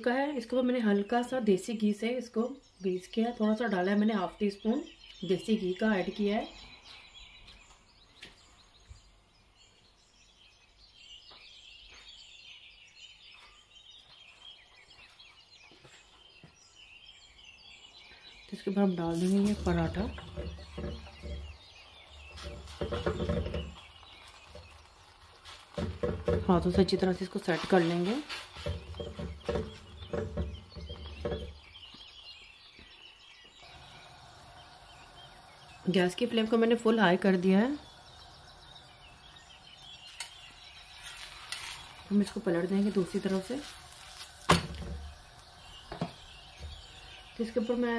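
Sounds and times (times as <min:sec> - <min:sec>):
faint birds chirping: 0:00.0 - 0:47.9
gas burner hissing: 0:19.0 - 0:31.6, 0:33.6 - 0:47.9.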